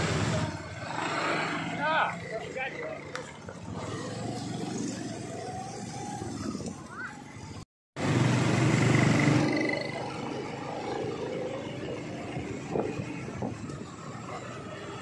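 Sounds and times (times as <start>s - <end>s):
motor scooter engine running: 8.0s - 15.0s.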